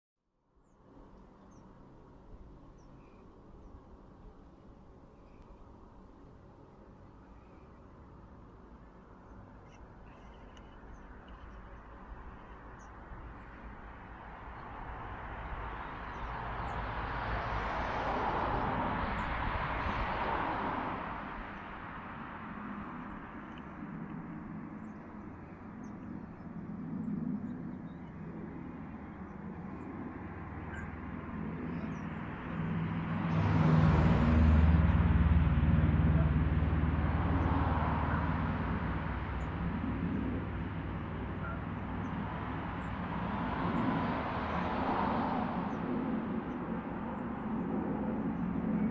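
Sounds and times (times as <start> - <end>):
vehicles passing: 9.7 - 24.6, 28.0 - 48.9
low engine hum: 28.0 - 48.9.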